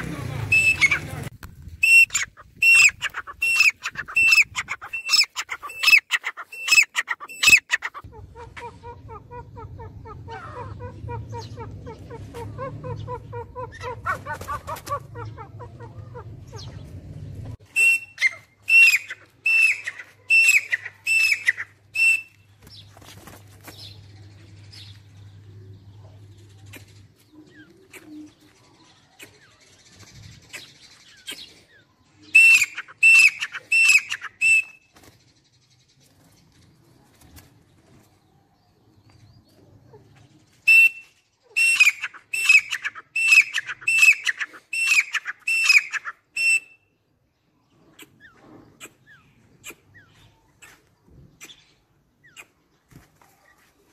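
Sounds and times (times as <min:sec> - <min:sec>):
francolin calling: 0:01.8 - 0:08.0.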